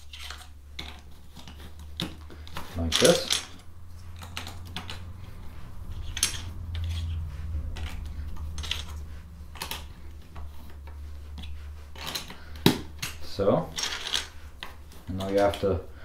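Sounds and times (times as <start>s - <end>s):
plastic pieces clicking: 13.8s - 15.6s.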